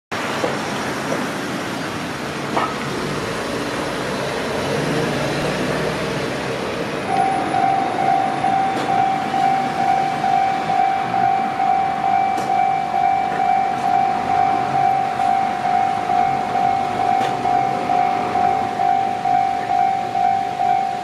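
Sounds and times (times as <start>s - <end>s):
cars driving: 0.2s - 21.0s
level crossing warning bell: 7.0s - 21.0s.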